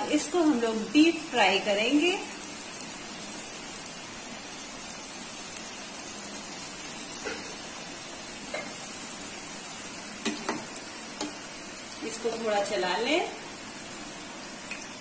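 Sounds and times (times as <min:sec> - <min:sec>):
chips sizzling in hot oil: 0:00.0 - 0:15.0.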